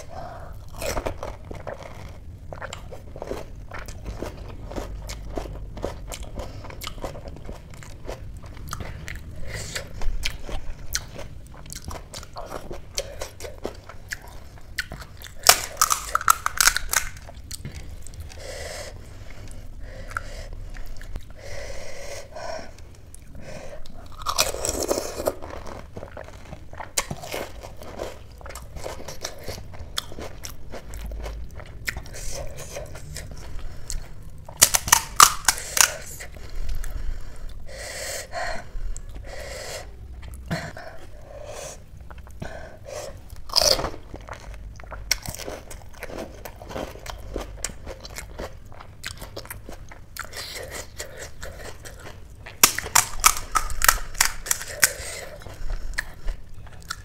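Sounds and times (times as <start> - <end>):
crisp shells crackling: 15.4 - 17.3, 52.6 - 55.2
wet chewing: 42.0 - 57.0.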